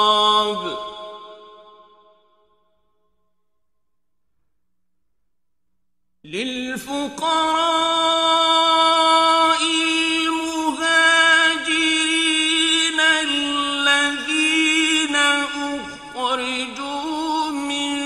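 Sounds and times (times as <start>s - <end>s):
man chanting recitation: 0.0s - 1.4s, 6.3s - 18.0s.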